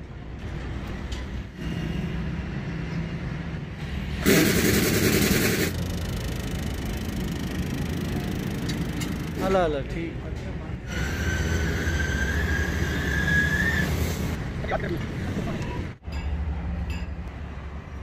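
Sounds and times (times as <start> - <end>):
vehicle engine running: 4.0 - 9.6
loud rush of hissing: 4.2 - 5.9.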